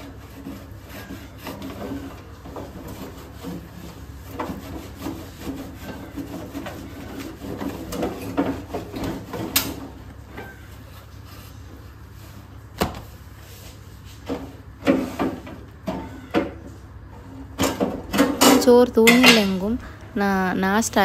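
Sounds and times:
cloth wiping stove: 0.0s - 15.5s.

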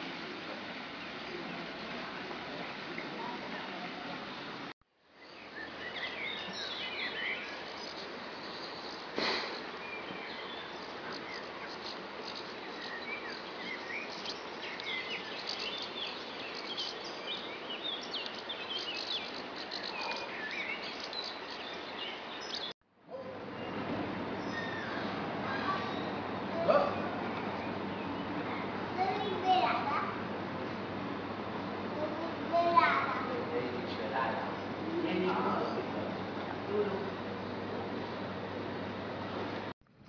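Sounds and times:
outdoor hiss: 0.0s - 39.7s
small birds chirping and singing: 5.2s - 29.9s.

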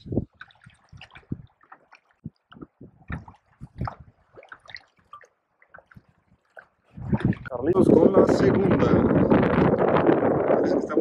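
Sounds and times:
water dripping and gurgling: 0.0s - 11.0s
light knocks and splashes: 0.2s - 7.6s.

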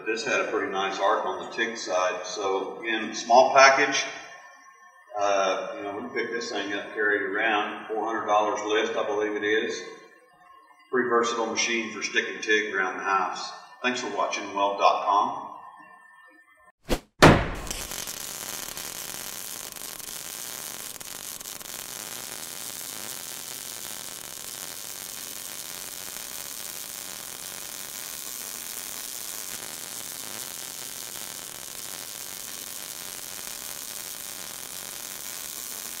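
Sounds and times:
welding arc sizzling: 17.2s - 36.0s.

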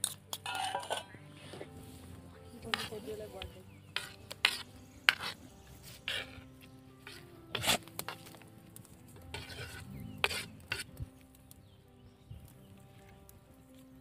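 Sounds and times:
knife scraping chopping board: 4.0s - 5.4s, 6.0s - 6.4s, 9.3s - 10.9s.

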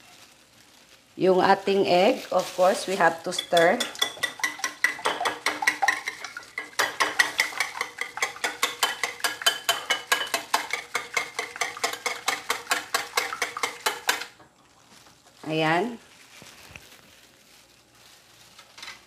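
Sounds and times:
whisk clicking against bowl: 3.3s - 14.3s.

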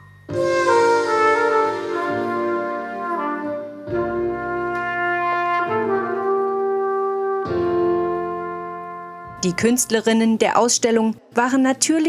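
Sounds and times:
trumpet playing slow notes: 0.3s - 9.5s.

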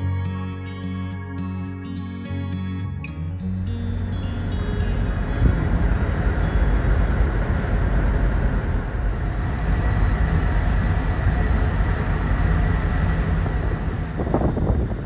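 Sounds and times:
rushing air: 3.7s - 15.0s
ship rumbling: 3.7s - 15.0s
wind buffeting microphone: 4.4s - 15.0s.

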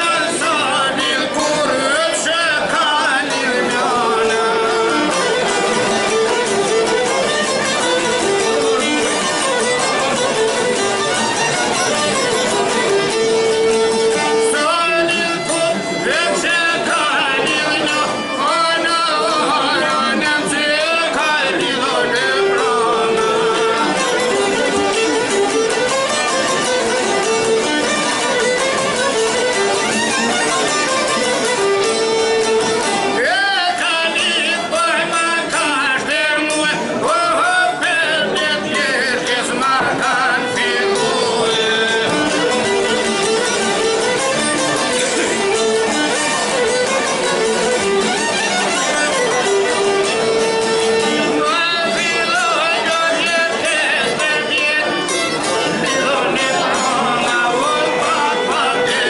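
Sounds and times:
man singing: 0.0s - 6.1s, 14.3s - 23.8s, 33.1s - 42.6s, 51.2s - 59.0s
fiddle playing: 0.0s - 59.0s
long-necked lute playing: 0.0s - 59.0s.

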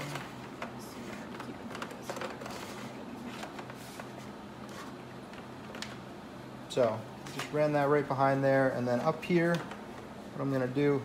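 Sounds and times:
cable rustling and scraping: 0.0s - 6.0s
steady low hum: 0.0s - 11.0s.

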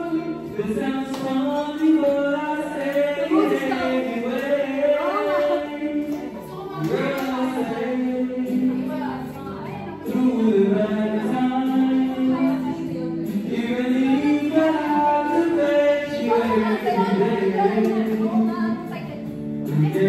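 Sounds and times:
several voices singing: 0.0s - 20.0s.

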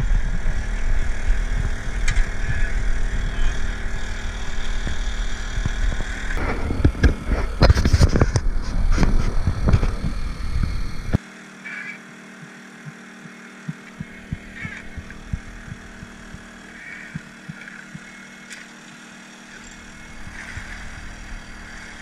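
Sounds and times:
small boat engine drone: 0.0s - 22.0s
sharp knocks: 13.7s - 18.1s
fish splashing water: 14.0s - 22.0s.

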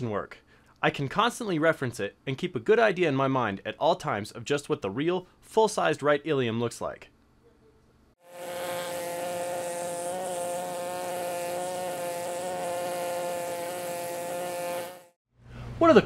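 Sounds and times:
pneumatic air scribe buzzing: 8.2s - 15.2s.

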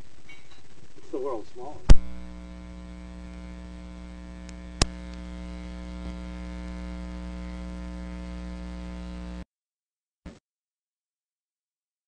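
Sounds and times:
mains hum: 0.0s - 9.5s
sharp click: 1.9s - 2.2s, 4.4s - 5.2s.

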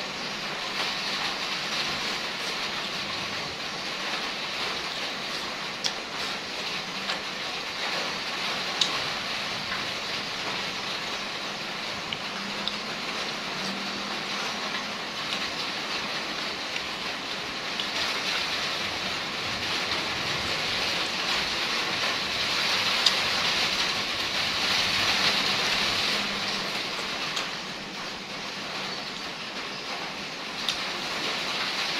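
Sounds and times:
rain hissing: 0.0s - 31.9s.

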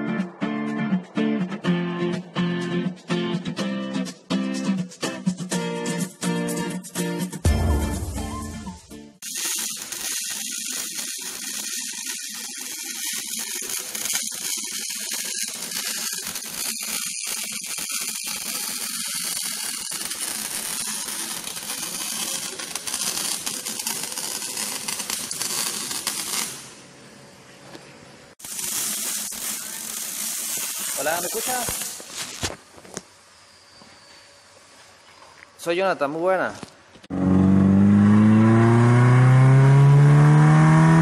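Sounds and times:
welder arc crackling: 9.2s - 26.8s, 28.4s - 32.6s
steady welding hiss: 9.2s - 27.2s, 28.3s - 34.9s.

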